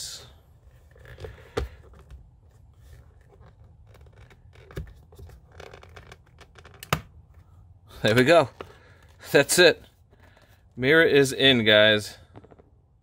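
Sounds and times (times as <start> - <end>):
plastic scraping and rubbing: 0.6 - 7.4.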